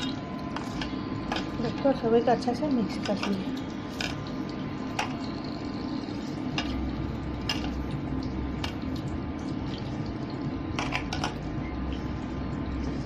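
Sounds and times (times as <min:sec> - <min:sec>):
low hum: 0:03.4 - 0:13.0.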